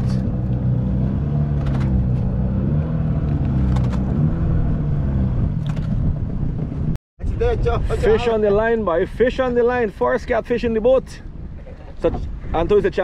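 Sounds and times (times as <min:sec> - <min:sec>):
boat engine humming: 0:00.0 - 0:06.9.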